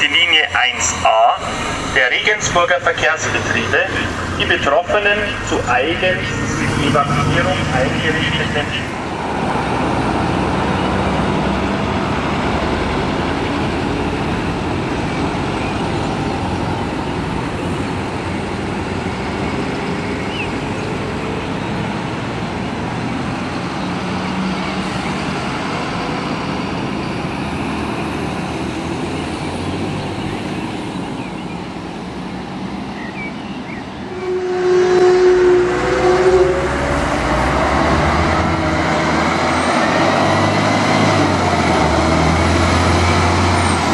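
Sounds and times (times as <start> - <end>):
truck engine revving: 0.0 - 33.1, 34.0 - 43.9
fire trucks driving past: 0.0 - 43.9
brief steady tone: 34.1 - 37.0.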